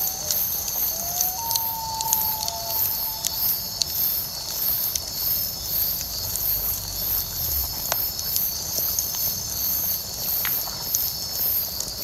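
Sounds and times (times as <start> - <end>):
bonfire crackling pops: 0.0 - 6.9, 7.6 - 11.1
night insects chirping: 0.0 - 7.4.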